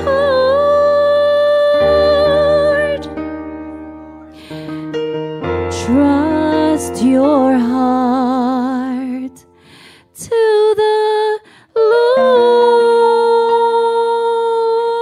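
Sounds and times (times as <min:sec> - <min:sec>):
woman singing slowly: 0:05.7 - 0:09.4, 0:10.2 - 0:15.0.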